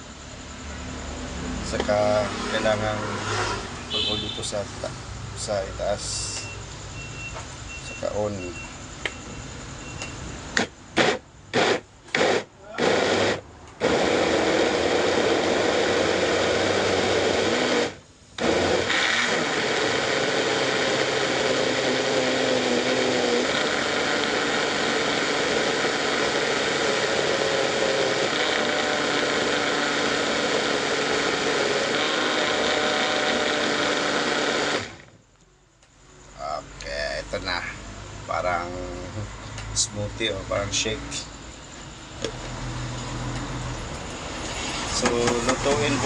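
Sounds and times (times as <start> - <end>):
blender whining: 10.6 - 35.2, 44.2 - 46.0.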